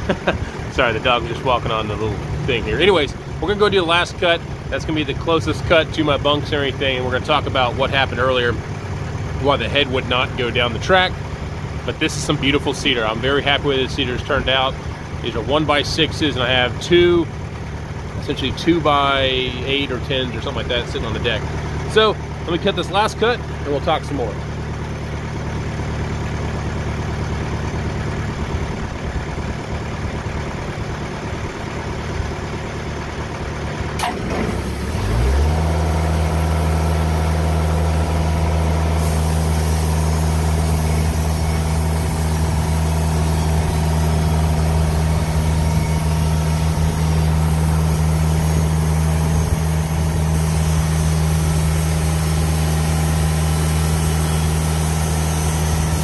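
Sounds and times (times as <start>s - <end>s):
sawmill engine running: 0.0s - 56.0s.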